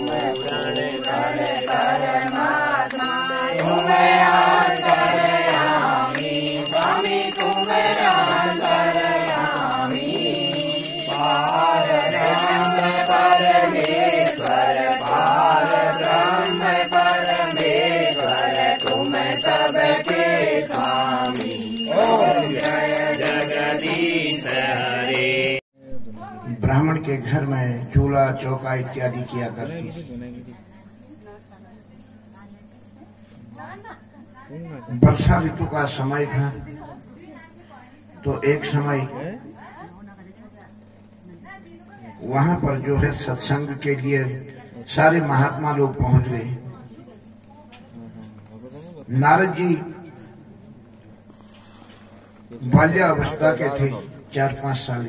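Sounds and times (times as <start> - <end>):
bell ringing: 0.0 - 25.6.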